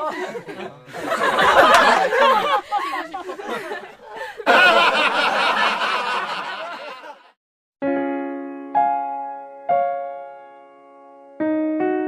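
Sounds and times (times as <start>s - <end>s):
crowd laughing: 0.0s - 7.4s
piano chords ringing: 7.8s - 12.0s.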